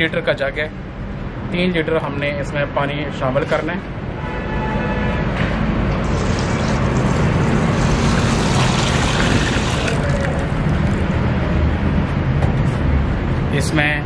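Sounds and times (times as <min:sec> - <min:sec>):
water pouring into a pot: 0:06.0 - 0:10.5.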